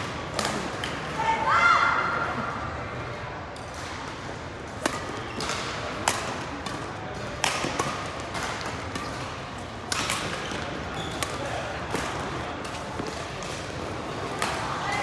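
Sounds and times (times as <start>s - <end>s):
large hall background noise: 0.0s - 15.0s
rackets hitting shuttlecock: 3.6s - 14.7s.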